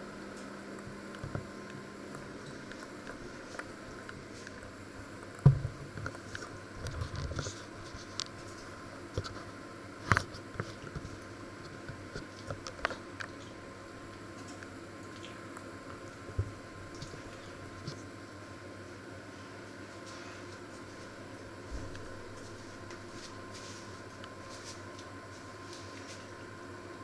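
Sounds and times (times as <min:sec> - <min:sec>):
electric oven humming: 0:00.0 - 0:27.0
small ticks and crackles: 0:00.3 - 0:18.2.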